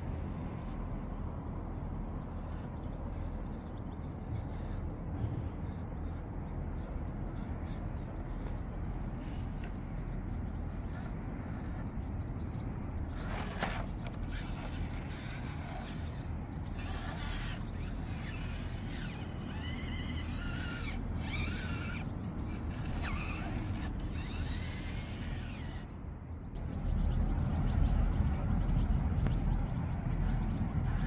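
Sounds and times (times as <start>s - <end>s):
small electric motor whining: 0.0s - 1.0s, 5.6s - 12.0s, 13.0s - 26.0s, 30.1s - 31.0s.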